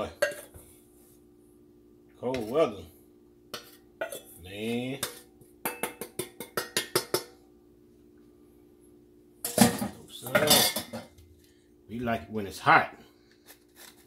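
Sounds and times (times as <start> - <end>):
metal bowl tapping on sifter: 5.0 - 7.3.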